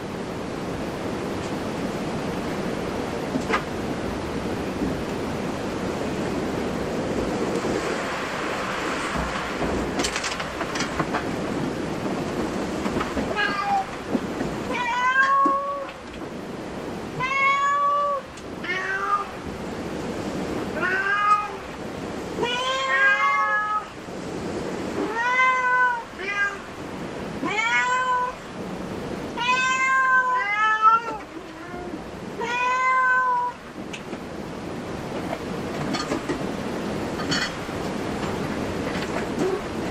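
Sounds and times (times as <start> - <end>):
cat meowing: 13.3 - 13.9, 14.7 - 16.0, 17.1 - 19.4, 20.8 - 21.7, 22.4 - 23.9, 25.0 - 26.7, 27.4 - 28.4, 29.4 - 33.6.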